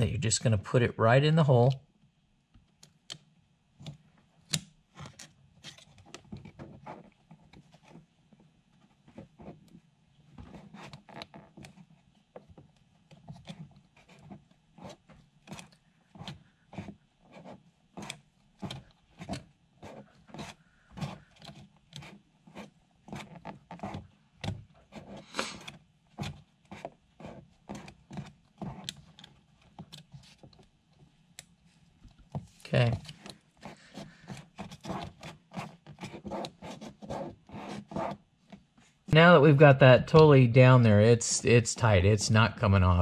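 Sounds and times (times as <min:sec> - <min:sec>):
hand rubbing plastic bracket: 0:32.3 - 0:38.8.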